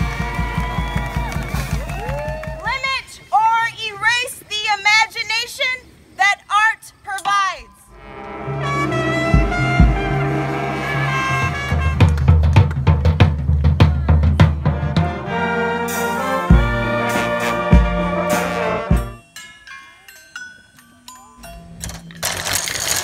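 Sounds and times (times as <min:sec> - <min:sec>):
brass band playing: 0:07.9 - 0:12.8, 0:14.6 - 0:19.2
drum hits: 0:08.1 - 0:15.2, 0:16.5 - 0:19.2.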